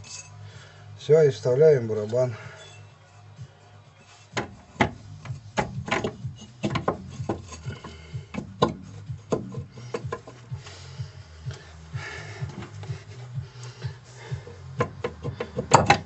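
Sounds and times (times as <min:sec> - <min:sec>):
metal scraping: 0:00.0 - 0:00.4, 0:01.8 - 0:03.4, 0:04.0 - 0:10.6
metal knocks and clunks: 0:04.2 - 0:10.4, 0:14.8 - 0:16.0.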